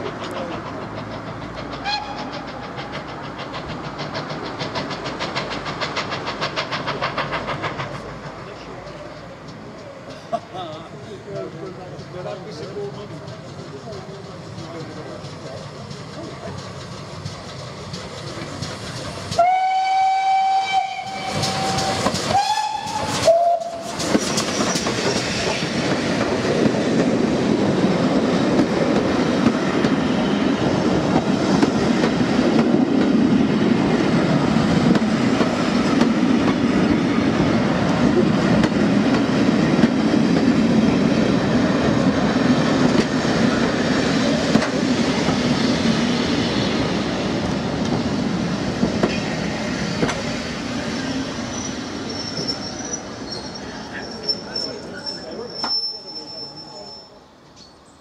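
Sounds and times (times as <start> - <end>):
train wheels clattering on rails: 0.0 - 55.8
steam locomotive whistle: 1.8 - 2.3, 19.4 - 24.0.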